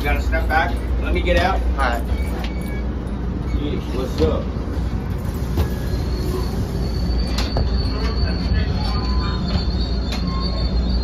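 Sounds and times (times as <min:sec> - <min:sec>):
rail coach rumbling on rails: 0:00.0 - 0:11.0
train wheels squealing: 0:02.1 - 0:04.4, 0:05.1 - 0:11.0.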